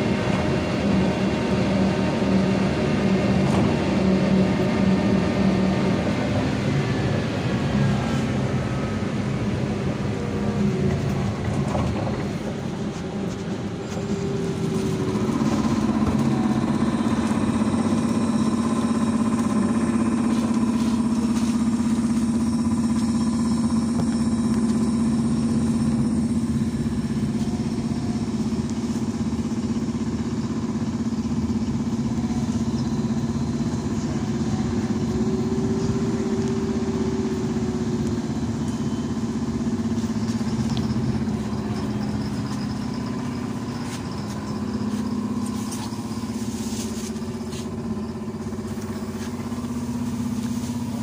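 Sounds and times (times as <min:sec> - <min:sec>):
road noise: 0:00.0 - 0:51.0
high whine: 0:12.8 - 0:51.0.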